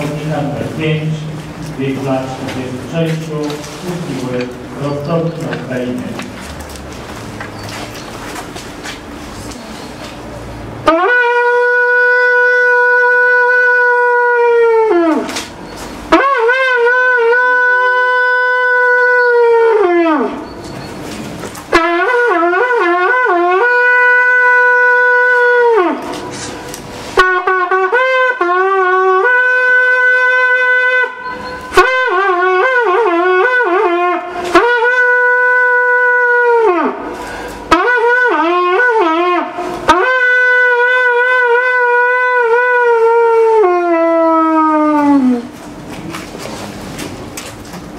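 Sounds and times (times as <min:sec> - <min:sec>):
shepherd's horn calls: 0:10.8 - 0:20.7, 0:21.7 - 0:45.5.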